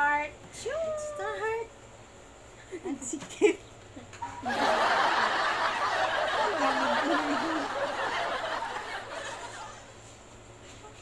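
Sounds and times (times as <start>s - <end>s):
women laughing: 2.6s - 9.9s.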